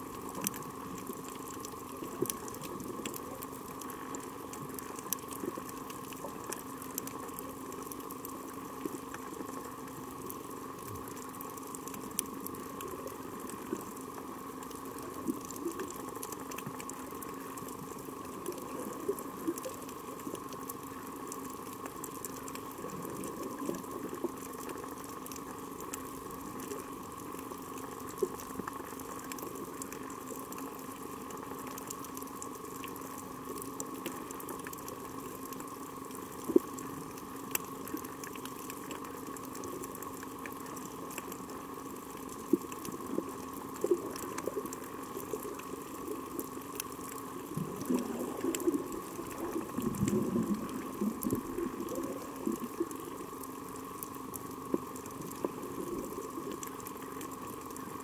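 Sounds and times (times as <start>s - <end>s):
underwater hum and water noise: 0.0s - 58.0s.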